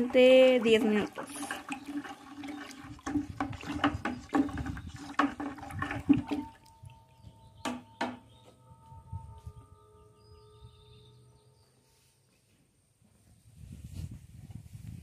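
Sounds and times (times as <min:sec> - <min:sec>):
water sloshing in plastic bucket: 0:00.0 - 0:07.0.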